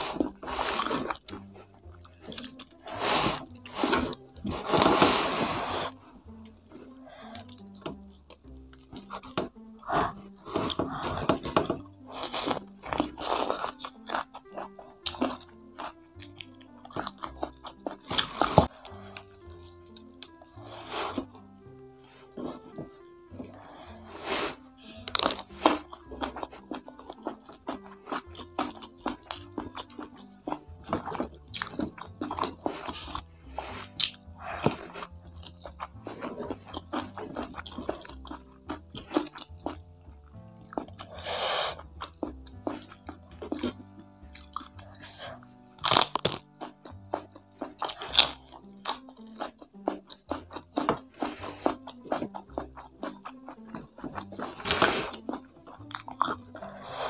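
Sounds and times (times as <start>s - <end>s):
crunching and chewing food: 0.0s - 57.0s
quiet background music: 0.0s - 57.0s
lettuce being bitten: 9.0s - 20.0s, 24.8s - 39.8s, 40.6s - 43.8s, 44.4s - 57.0s.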